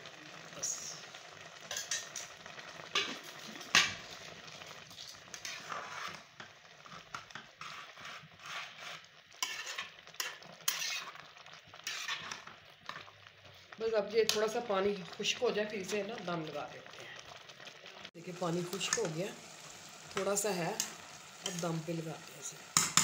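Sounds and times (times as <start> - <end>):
faint sizzle: 0.0 - 23.0
metal ladle scraping a pot: 5.3 - 6.4, 7.2 - 13.0.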